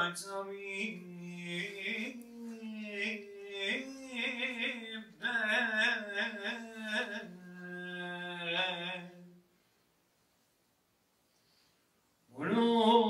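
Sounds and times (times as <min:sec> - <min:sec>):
man chanting unaccompanied: 0:00.0 - 0:09.4, 0:12.3 - 0:13.0.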